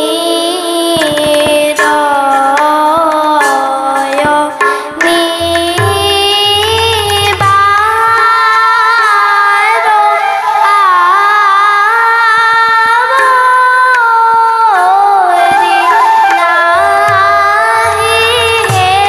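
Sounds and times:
harmonium: 0.0 - 19.0
young woman singing: 0.0 - 19.0
drum playing: 3.4 - 8.1, 16.8 - 19.0
bamboo flute: 9.0 - 12.0, 14.7 - 18.9.

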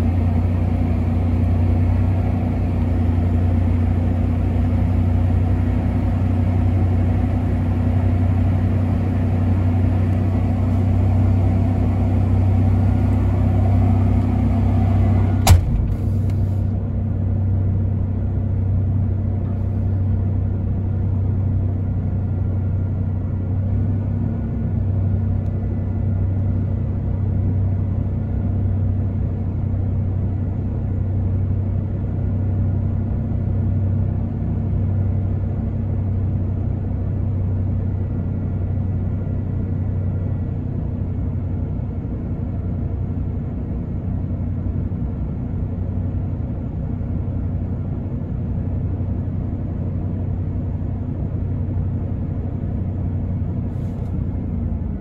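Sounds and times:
engine fast-idling: 0.0 - 17.1.

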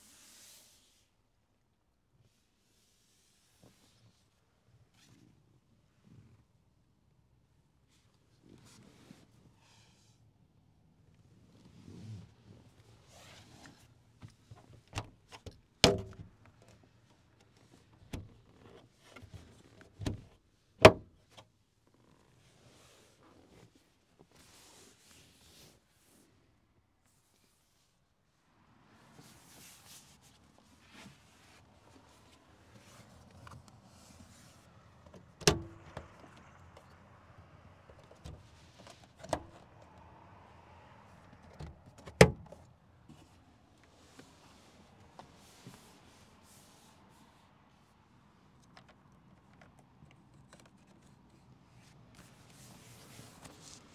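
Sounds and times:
van cabin fittings clunking: 35.4 - 36.2.

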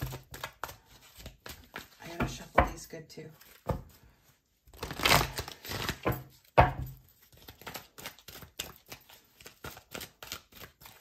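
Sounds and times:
cards being shuffled: 0.0 - 2.1, 4.7 - 6.4, 7.0 - 11.0.

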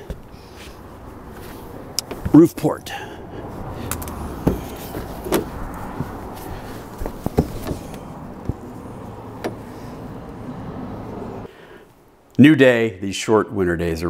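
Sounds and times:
cable clicks and knocks: 3.9 - 8.7, 9.4 - 9.7.

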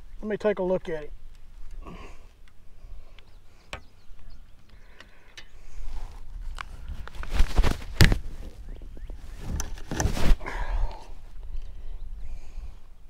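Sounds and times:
camera rubbing against clothing: 5.7 - 10.4.

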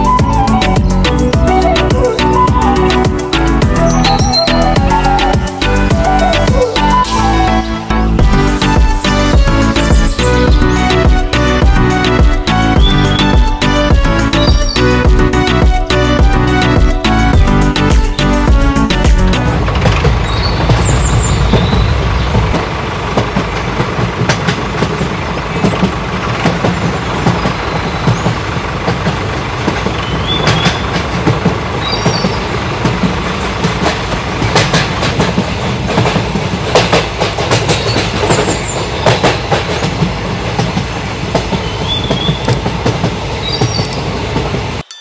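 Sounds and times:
bird chirps: 0.0 - 5.4, 12.8 - 15.0, 20.2 - 22.5, 29.9 - 32.5, 41.5 - 44.1
train wheels clicking over rail joints: 18.1 - 44.9.

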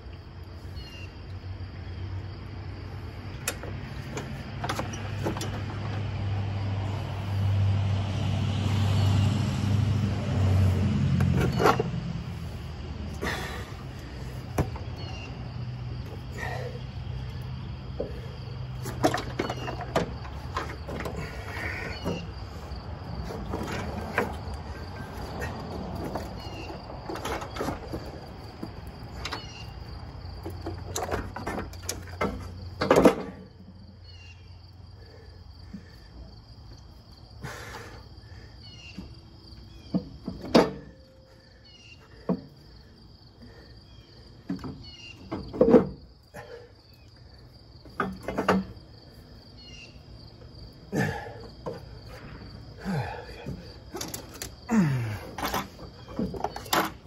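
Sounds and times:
insects chirping: 0.0 - 57.0
metal clunks and scrapes: 3.4 - 6.3, 11.1 - 16.8, 17.9 - 33.9, 39.8 - 42.7, 44.4 - 46.7, 47.8 - 49.2, 51.0 - 57.0.

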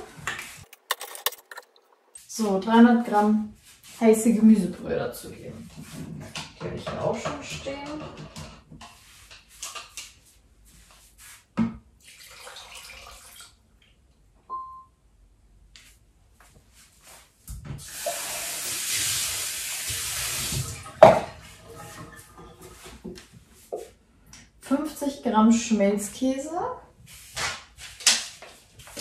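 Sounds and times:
short electronic beep: 14.5 - 14.9.

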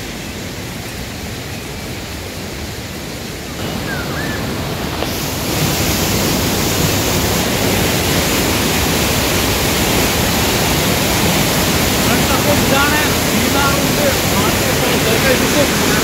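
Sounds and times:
water rushing over rocks: 0.0 - 16.0.

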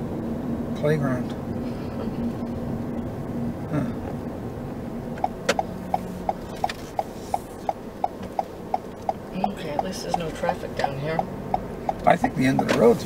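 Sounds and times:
car cabin hum: 0.0 - 13.0
turn signal ticking: 5.1 - 13.0.

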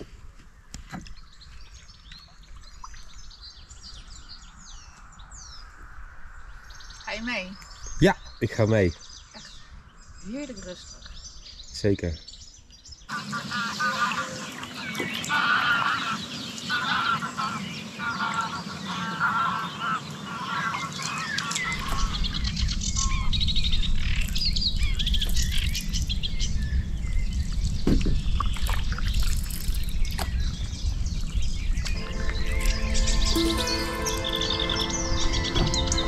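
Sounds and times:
small birds chirping: 0.0 - 36.0
waterfowl calling: 13.1 - 23.5, 32.0 - 36.0
low rumble: 21.6 - 29.6, 30.3 - 36.0.

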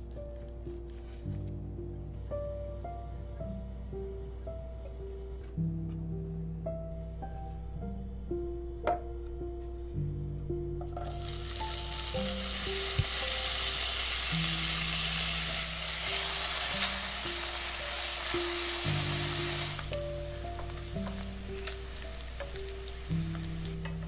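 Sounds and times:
bacon sizzling in pan: 11.0 - 24.0.

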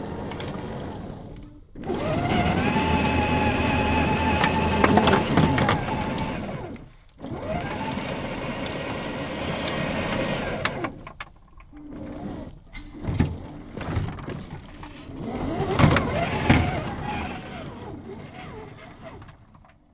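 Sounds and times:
toy car motor whining: 1.8 - 6.8, 14.8 - 19.4.

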